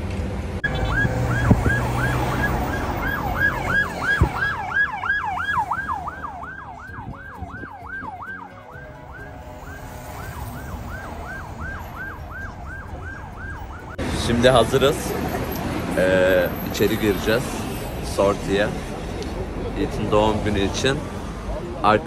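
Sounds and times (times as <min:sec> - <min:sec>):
road rumble from moving car: 0:00.0 - 0:22.0
ambulance siren yelping: 0:00.6 - 0:14.0.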